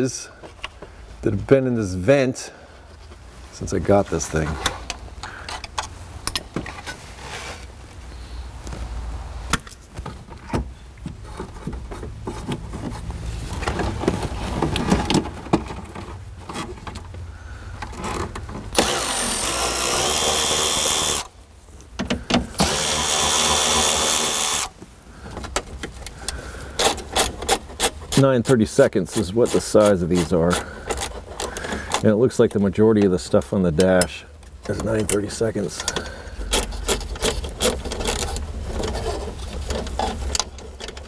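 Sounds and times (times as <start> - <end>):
cordless ratchet motor running: 18.8 - 21.3, 22.6 - 24.7.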